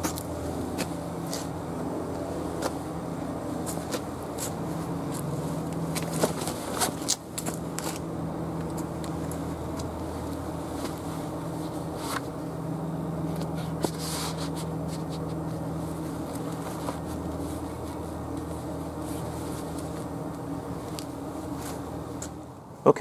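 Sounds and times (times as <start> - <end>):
steady low hum: 0.0 - 23.0
clothing rustling: 13.4 - 22.4.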